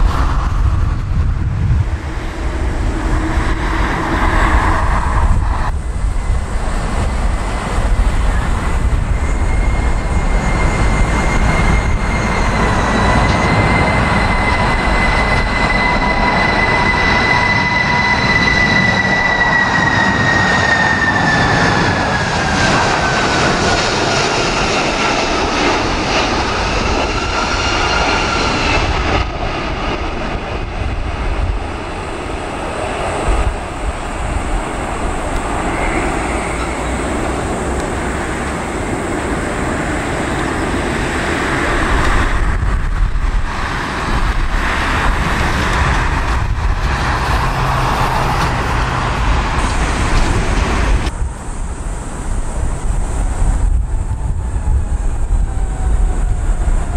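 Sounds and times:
jet engines whining: 0:00.0 - 0:56.9
low jet rumble: 0:00.0 - 0:56.9
wind on microphone: 0:00.0 - 0:56.9.

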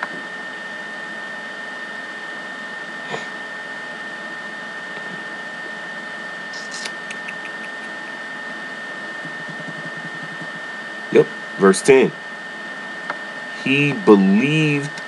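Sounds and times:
microphone hiss: 0:06.6 - 0:07.9.

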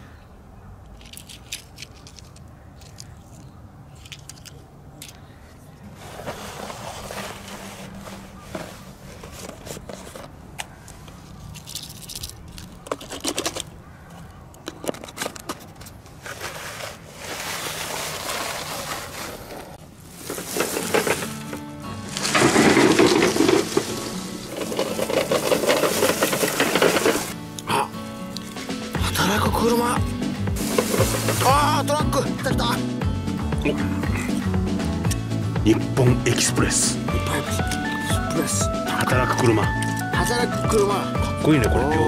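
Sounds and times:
toy cars scraping on gravel: 0:06.0 - 0:10.4, 0:14.9 - 0:27.4, 0:30.5 - 0:32.5.

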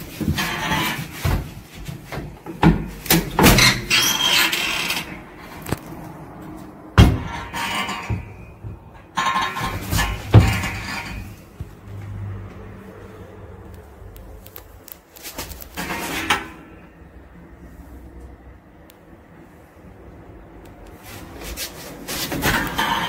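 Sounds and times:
sharp knocks and clatters: 0:00.0 - 0:12.7, 0:21.4 - 0:23.0
rustling: 0:13.7 - 0:16.3.

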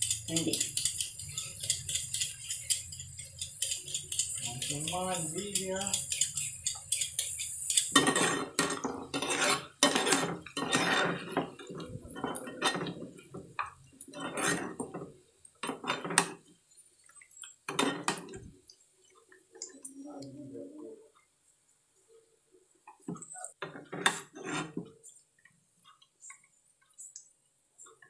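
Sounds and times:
metal utensils clattering in bowl: 0:00.0 - 0:13.2.

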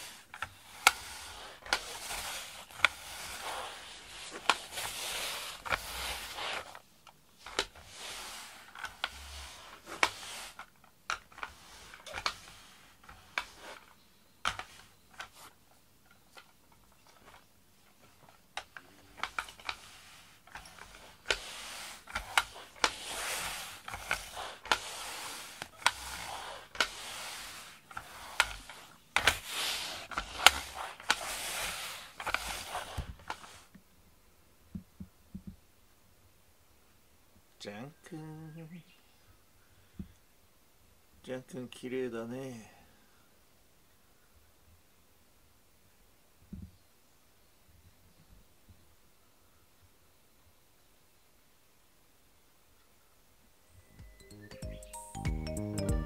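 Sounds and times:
lint roller tape crackling: 0:00.0 - 0:33.8.

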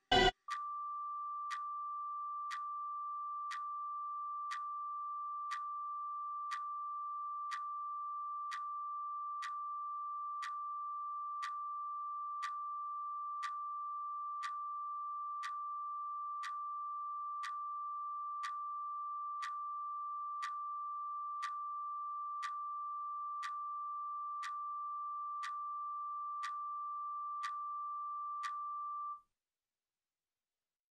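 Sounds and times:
high electronic sine tone: 0:00.0 - 0:04.4
clock-like tick: 0:00.1 - 0:00.6, 0:04.5 - 0:04.7, 0:06.5 - 0:06.7, 0:07.5 - 0:07.7, 0:08.5 - 0:08.7, 0:09.4 - 0:09.6, 0:10.4 - 0:10.6, 0:11.4 - 0:11.6, 0:12.4 - 0:12.6, 0:13.4 - 0:13.6, 0:14.4 - 0:14.6, 0:15.4 - 0:15.6, 0:16.4 - 0:16.6, 0:17.4 - 0:17.6, 0:18.4 - 0:18.6, 0:19.4 - 0:19.6, 0:20.4 - 0:20.6, 0:21.4 - 0:21.6, 0:22.4 - 0:22.6, 0:23.4 - 0:23.6, 0:24.4 - 0:24.6, 0:25.4 - 0:25.6, 0:26.4 - 0:26.6, 0:27.4 - 0:27.6, 0:28.4 - 0:28.6.

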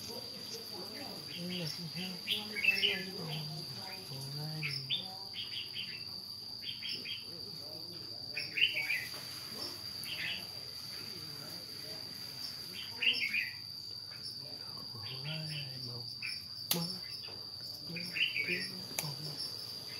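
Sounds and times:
low voice murmuring: 0:00.0 - 0:05.3, 0:17.7 - 0:19.6
insects trilling: 0:00.0 - 0:19.9
bird chirps: 0:01.2 - 0:04.0, 0:04.6 - 0:07.3, 0:15.0 - 0:19.9.

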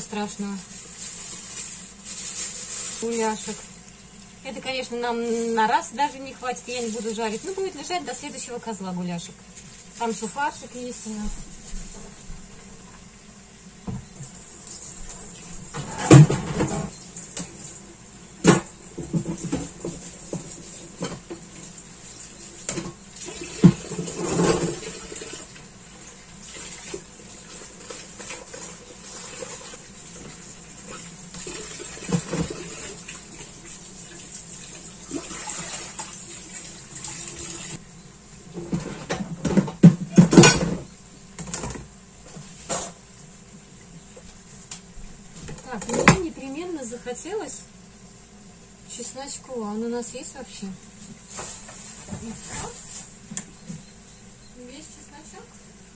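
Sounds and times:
tap water running into sink: 0:22.6 - 0:25.7, 0:26.4 - 0:37.8
dishes clattering: 0:38.6 - 0:41.8.

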